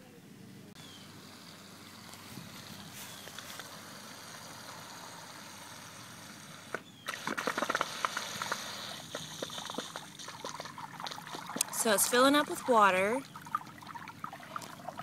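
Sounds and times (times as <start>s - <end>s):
hose water hissing: 1.0s - 13.3s.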